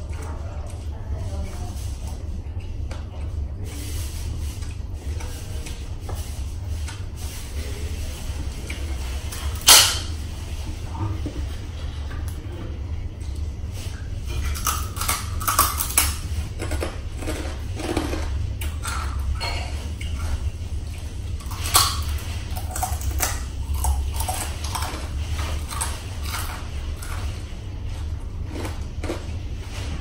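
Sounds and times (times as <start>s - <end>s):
cutlery clinking on a plate: 9.6s - 10.2s.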